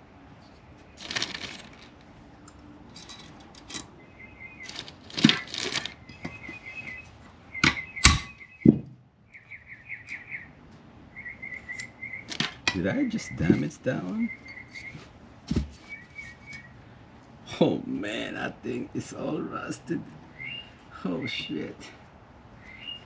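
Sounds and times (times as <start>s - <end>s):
small metal parts clinking: 1.0s - 3.9s, 4.6s - 6.2s.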